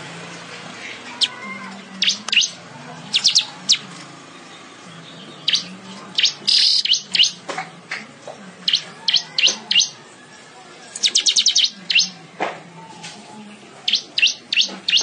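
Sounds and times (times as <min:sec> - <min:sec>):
bird chirping: 0:02.0 - 0:07.4, 0:08.6 - 0:10.0, 0:11.0 - 0:12.2, 0:13.9 - 0:15.0.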